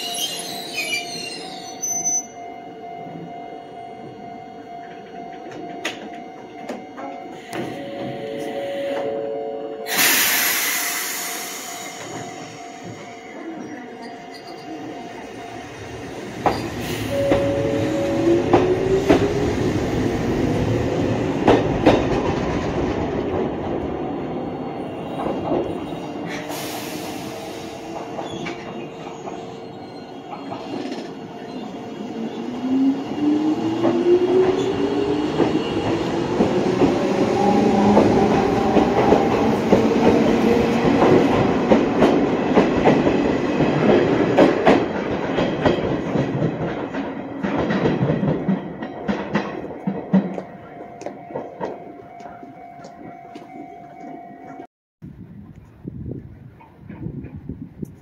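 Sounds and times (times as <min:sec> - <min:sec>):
electric train whine: 0:00.0 - 0:54.6
wheels clacking over rail joints: 0:37.7 - 0:52.4.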